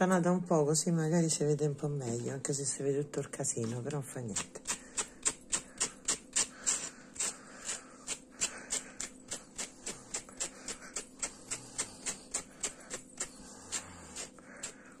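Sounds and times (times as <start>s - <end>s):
brush strokes through yarn: 5.2s - 15.0s.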